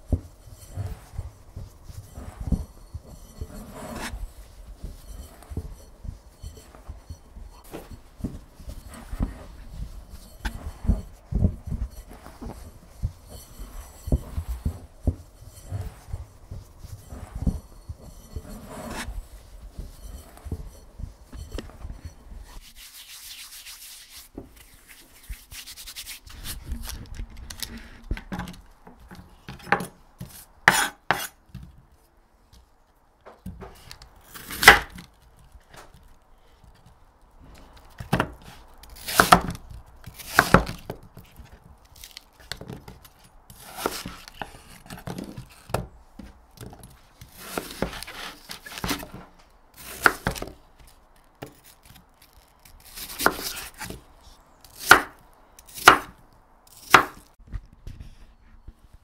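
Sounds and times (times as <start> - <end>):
fingers mixing flour in bowl: 0.0 - 27.1
knife cutting on wooden board: 0.1 - 4.2, 30.2 - 31.3, 38.4 - 40.8, 43.6 - 45.6, 47.3 - 49.2, 52.7 - 54.0, 54.7 - 56.1, 56.7 - 57.3.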